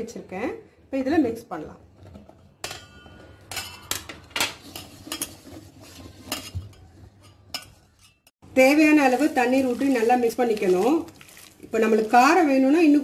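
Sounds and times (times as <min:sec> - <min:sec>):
mushrooms mixed in flour coating: 0:04.6 - 0:13.0.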